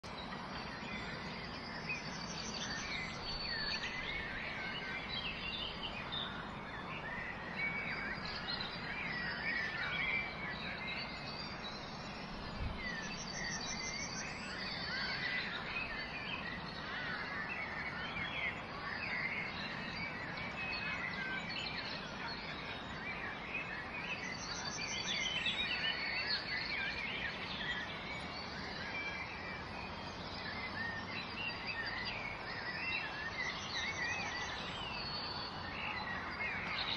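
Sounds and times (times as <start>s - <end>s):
small birds chirping: 0.0s - 36.9s
steady background hiss: 0.1s - 36.9s.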